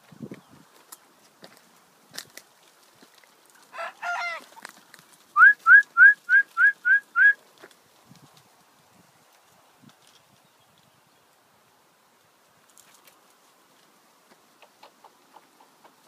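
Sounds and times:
person whistling short rising notes: 5.4s - 7.4s.

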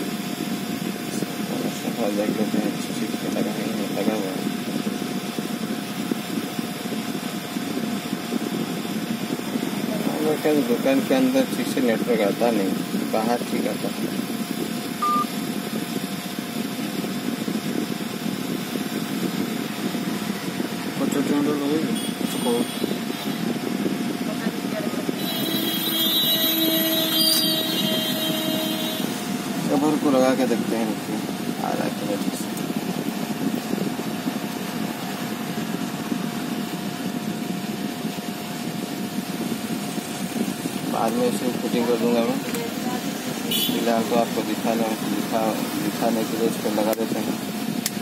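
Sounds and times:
low rumbling background noise: 0.0s - 48.0s
steady mechanical hum: 0.0s - 48.0s
phone short beep: 15.0s - 15.3s.

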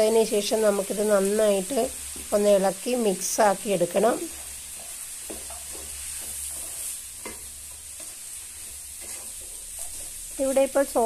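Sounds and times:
food sizzling: 0.0s - 11.0s
spatula scraping pan: 3.9s - 11.0s.

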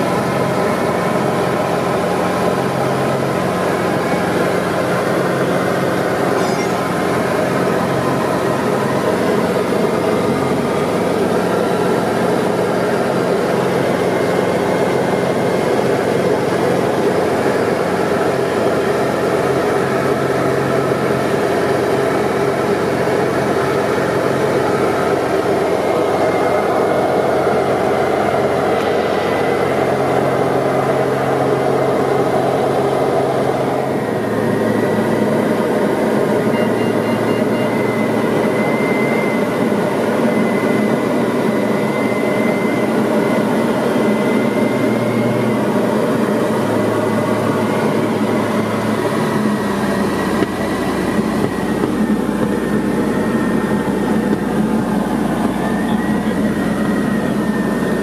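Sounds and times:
aircraft engine and propeller drone: 0.0s - 58.0s
rushing airflow: 24.0s - 36.3s.

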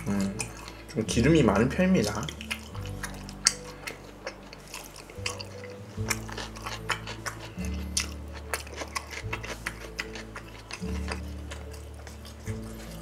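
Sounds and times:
slow low background music: 0.0s - 13.0s
wet chewing and lip-smacking: 0.0s - 13.0s.

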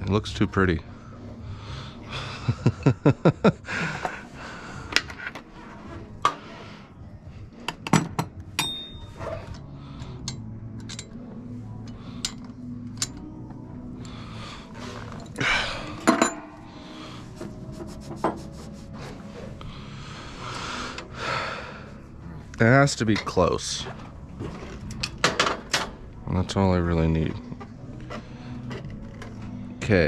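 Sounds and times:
metal tools clinking: 7.9s - 9.6s, 10.2s - 11.2s, 16.0s - 16.5s.

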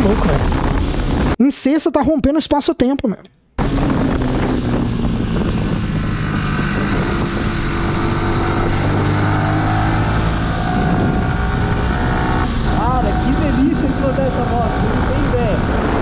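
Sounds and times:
wind noise on microphone: 0.0s - 1.4s, 3.6s - 16.0s
motorcycle engine running: 3.6s - 16.0s.

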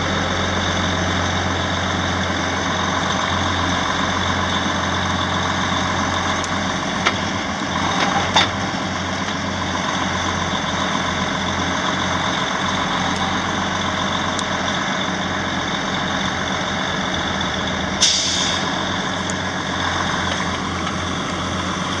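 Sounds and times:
diesel engine running: 0.0s - 22.0s
air hiss: 18.0s - 18.7s.

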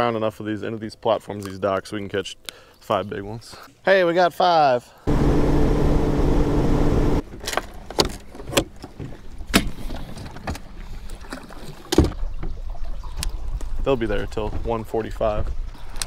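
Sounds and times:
outboard motor running: 5.1s - 7.2s.

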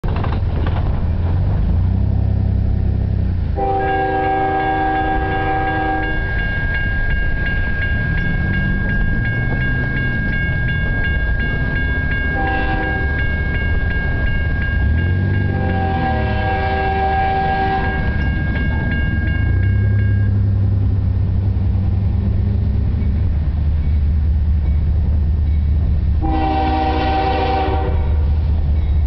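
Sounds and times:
low train rumble: 0.0s - 29.0s
locomotive air horn: 3.6s - 6.3s, 12.3s - 13.2s, 15.5s - 18.2s, 26.2s - 28.5s
crossing bell ringing: 3.6s - 29.0s.

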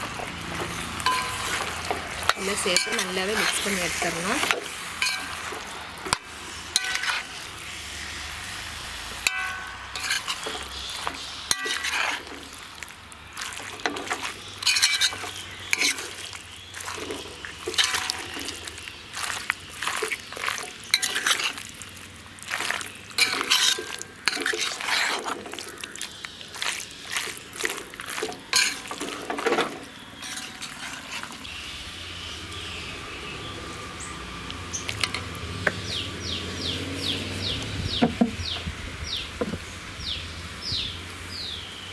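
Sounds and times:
steel ladle scraping and clinking pan: 0.0s - 7.5s, 9.2s - 12.6s, 13.4s - 21.7s, 22.5s - 25.7s, 26.6s - 31.5s.

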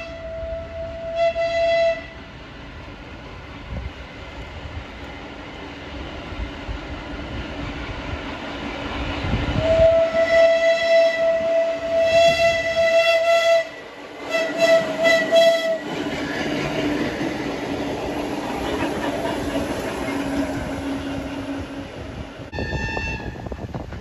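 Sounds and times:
train horn blasts and toots: 0.0s - 2.3s, 9.6s - 15.9s, 22.5s - 23.6s
train rumbling and clattering on rails: 0.0s - 24.0s.

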